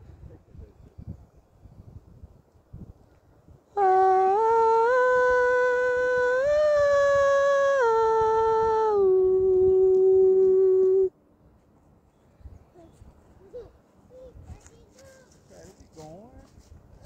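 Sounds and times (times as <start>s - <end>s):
person humming a slow tune: 3.7s - 11.1s.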